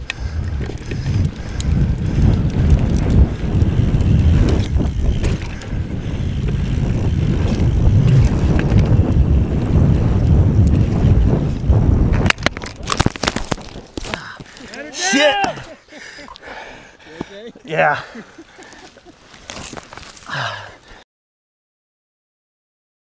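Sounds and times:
wind buffeting microphone: 0:00.0 - 0:14.8
bike rattling over ground: 0:00.0 - 0:15.5, 0:18.6 - 0:20.6.

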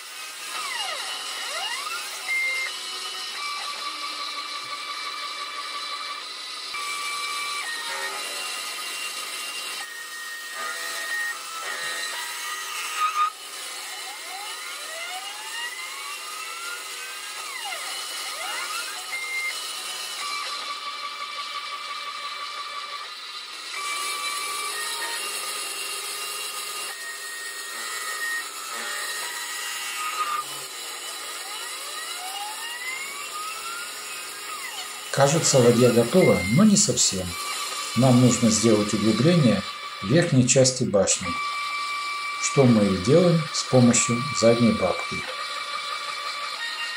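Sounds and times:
lathe cutter shaving wood: 0:00.0 - 0:46.9
stepper motors whining: 0:00.0 - 0:46.9.

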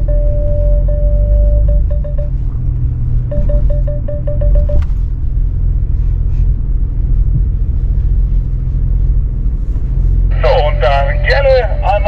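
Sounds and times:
short electronic beeps: 0:00.0 - 0:02.5, 0:03.3 - 0:04.9
car engine rumbling: 0:00.0 - 0:12.0.

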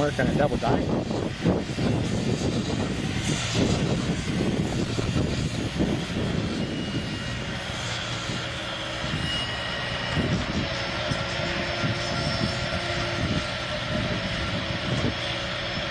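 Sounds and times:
faint high whine: 0:00.0 - 0:15.9
heavy engine droning: 0:00.0 - 0:15.9.

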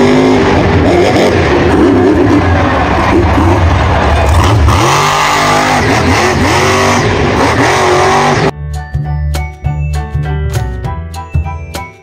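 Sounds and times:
truck engine revving: 0:00.0 - 0:08.6
children's music: 0:08.6 - 0:12.0.

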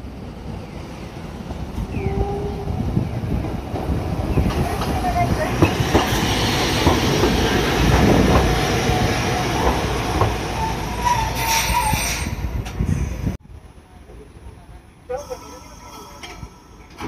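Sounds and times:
tram wheels rumbling over rail joints: 0:00.0 - 0:17.0
wheel squeal on rails: 0:10.6 - 0:13.2.

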